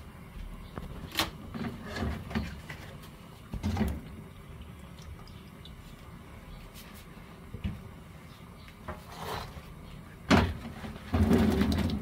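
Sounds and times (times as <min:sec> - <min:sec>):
dull kitchen knocks and thumps: 0:10.3 - 0:12.0.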